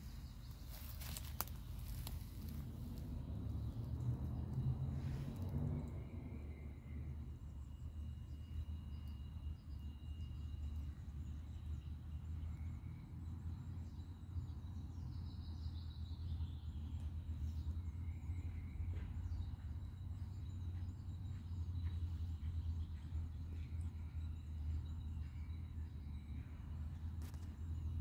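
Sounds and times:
steady low rumble: 0:00.0 - 0:13.6.

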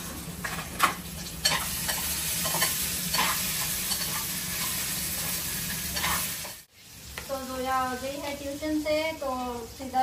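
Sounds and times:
frying sizzle: 0:00.0 - 0:10.0
spoon scraping in metal pan: 0:00.4 - 0:06.6.

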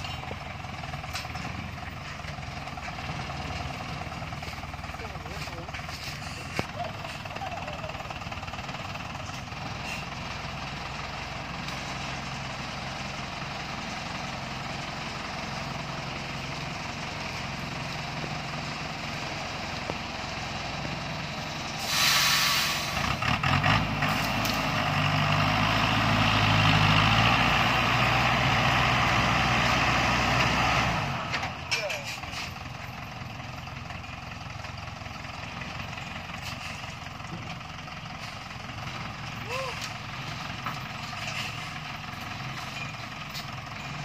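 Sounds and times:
truck engine running: 0:00.0 - 0:44.0
short loud hiss: 0:21.8 - 0:23.0.

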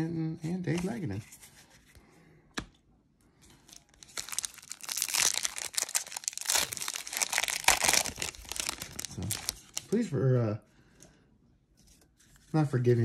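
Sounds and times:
foil wrapper crinkling: 0:03.7 - 0:10.0.

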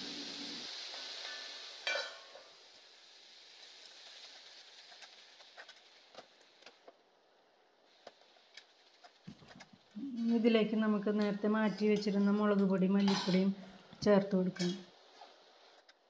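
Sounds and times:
vegetables sizzling in a pan: 0:00.0 - 0:16.0
steel lid on pan: 0:00.9 - 0:02.6, 0:11.2 - 0:13.5.

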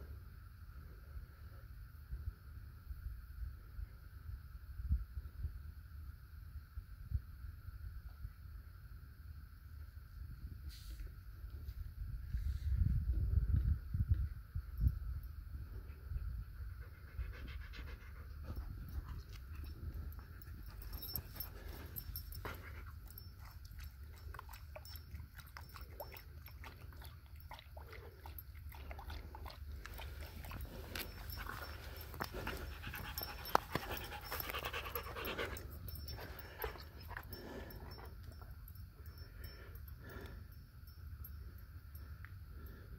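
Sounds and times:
dog panting: 0:16.6 - 0:38.5
dog lapping water: 0:23.4 - 0:36.8.

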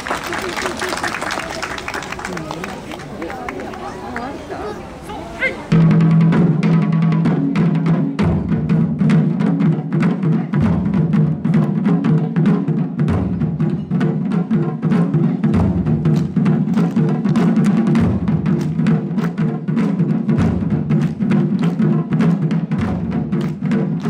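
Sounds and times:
taiko drums in fast rhythm: 0:05.7 - 0:24.0.

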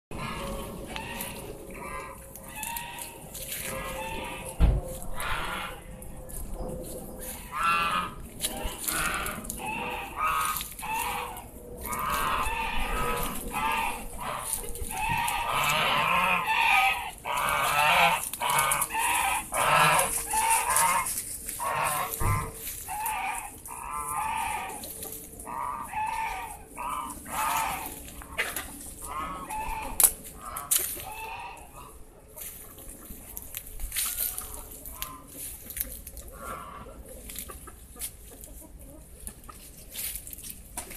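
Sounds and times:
domestic fowl calling: 0:00.1 - 0:40.9.

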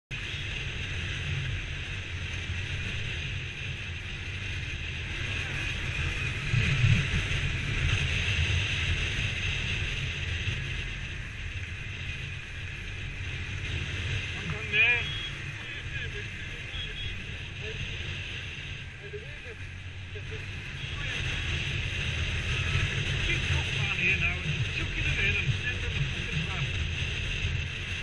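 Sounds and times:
motorcycle engine running: 0:00.1 - 0:28.0
wind noise on microphone: 0:00.1 - 0:28.0.

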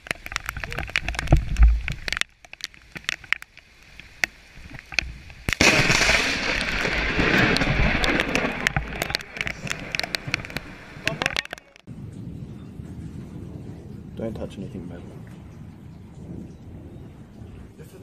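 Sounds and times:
rain clicking: 0:00.0 - 0:18.0
lightning crack: 0:05.4 - 0:18.0
loud thunder rumbling: 0:05.6 - 0:18.0.

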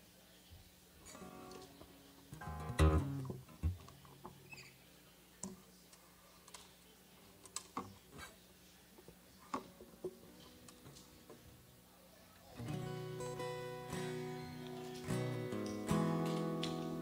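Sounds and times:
acoustic guitar strumming: 0:01.1 - 0:04.6, 0:12.6 - 0:17.0.

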